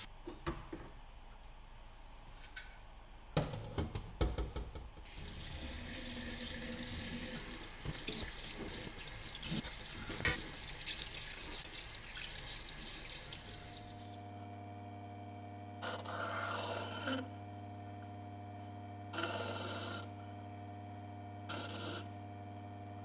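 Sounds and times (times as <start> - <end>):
water running from tap: 5.1 - 14.1.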